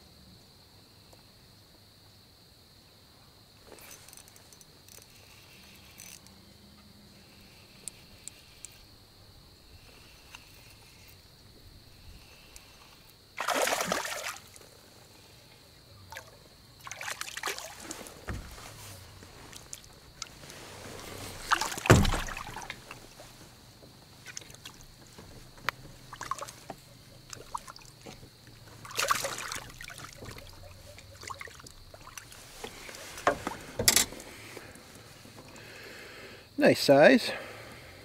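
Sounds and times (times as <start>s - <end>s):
water splashing against boat: 12.0s - 14.8s, 16.0s - 35.6s.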